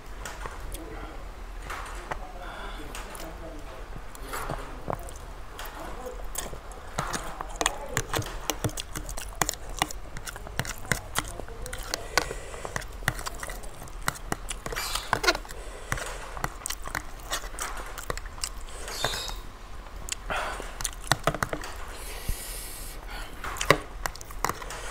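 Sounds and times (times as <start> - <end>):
chewing and mouth smacks: 4.1 - 22.0, 23.4 - 24.9
fork scraping plastic container: 6.4 - 19.4.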